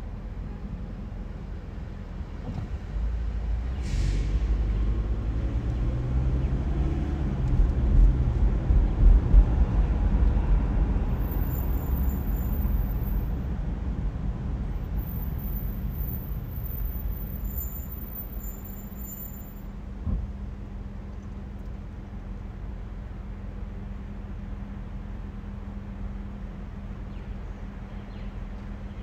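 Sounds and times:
car driving rumble from inside: 0:00.0 - 0:23.1.

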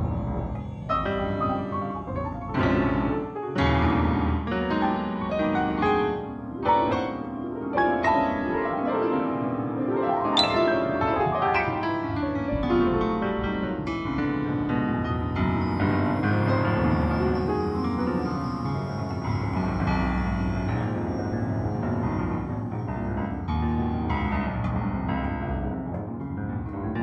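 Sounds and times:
piano notes and chords: 0:00.0 - 0:27.0.

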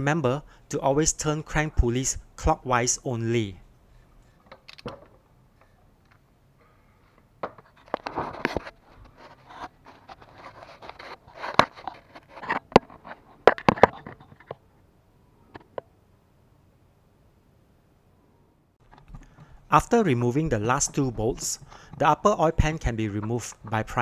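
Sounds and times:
socket wrench clicking and scraping: 0:04.5 - 0:05.0.

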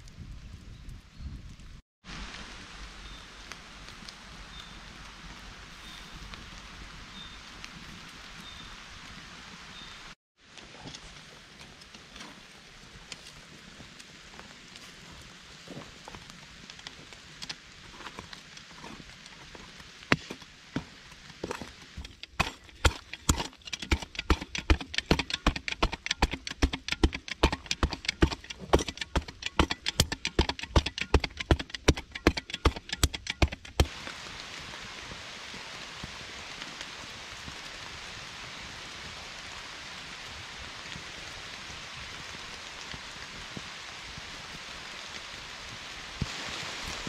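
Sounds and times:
sharp knocks: 0:22.0 - 0:33.9
steady hiss: 0:33.8 - 0:47.0.

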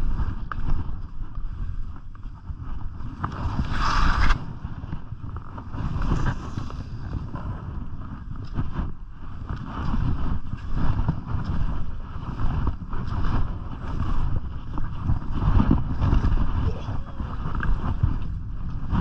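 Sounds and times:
wind buffeting a microphone: 0:00.0 - 0:19.0
skis sliding on packed snow: 0:01.5 - 0:04.6, 0:05.2 - 0:16.6.

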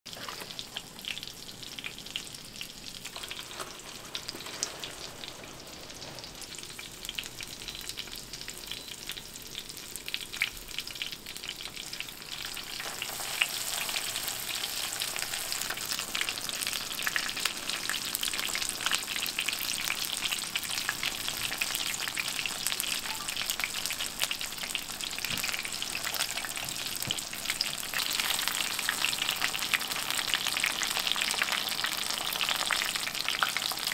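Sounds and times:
chicken deep-frying sizzle: 0:00.1 - 0:33.9.

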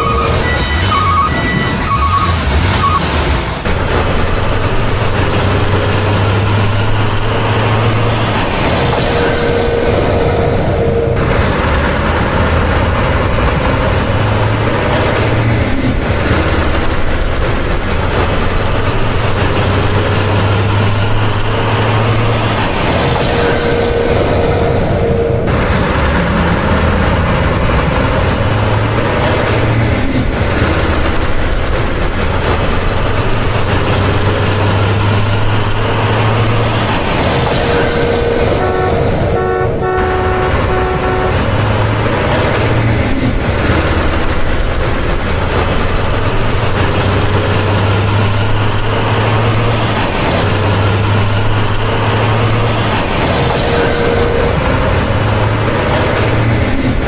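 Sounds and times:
truck horn toots: 0:00.0 - 0:03.1, 0:09.0 - 0:11.3, 0:23.2 - 0:25.5, 0:37.6 - 0:42.9, 0:53.6 - 0:54.6
truck engine running: 0:00.0 - 0:57.0.

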